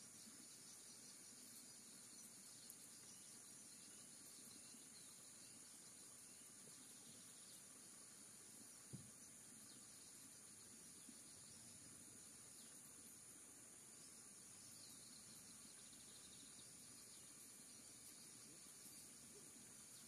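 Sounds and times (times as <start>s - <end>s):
insect chirring: 0.0s - 20.0s
soft knock: 8.9s - 9.1s.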